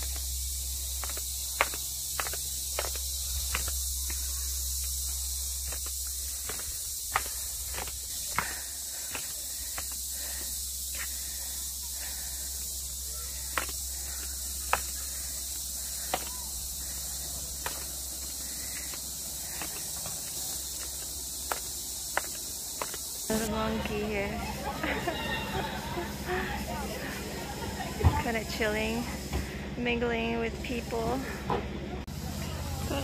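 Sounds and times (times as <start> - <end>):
insect chorus: 0.0 - 33.0
footsteps on wooden stairs: 17.6 - 23.2.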